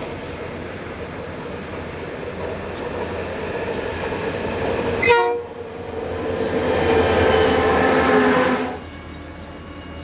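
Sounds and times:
diesel locomotives passing: 0.0 - 10.0
locomotive air horn chord: 5.0 - 5.6.

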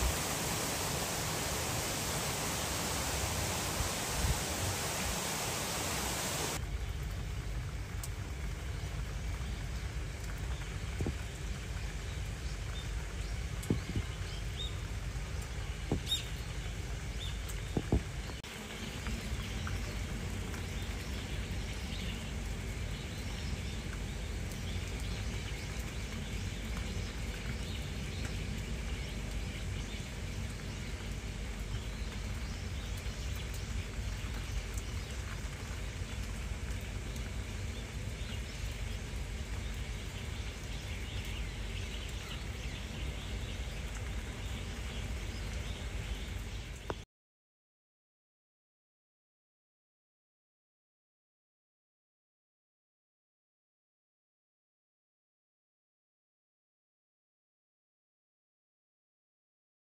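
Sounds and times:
faint rain patter: 0.0 - 47.1
light taps and knocks: 13.6 - 14.2, 15.8 - 16.2, 17.6 - 18.4.

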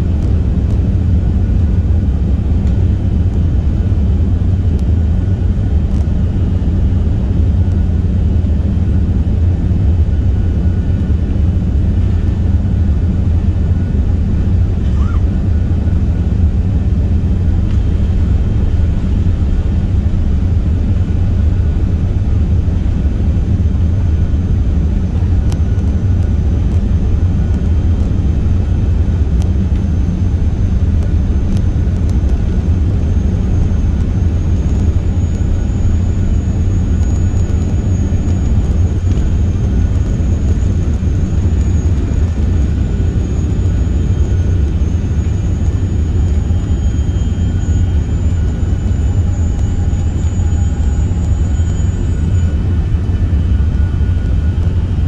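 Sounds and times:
airplane cabin low rumble: 0.0 - 55.0
faint high whine: 0.0 - 55.0.

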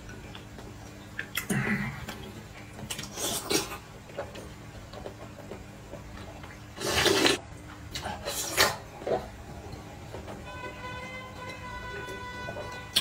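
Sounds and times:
person slurping noodles: 6.8 - 7.4.

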